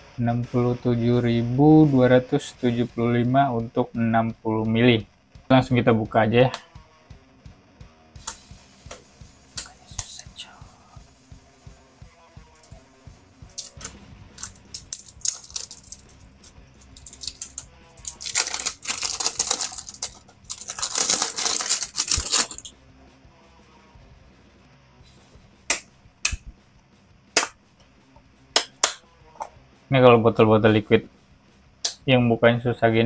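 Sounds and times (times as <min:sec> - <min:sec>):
plastic sleeve crinkling and tearing: 0:13.6 - 0:16.1, 0:17.0 - 0:22.7.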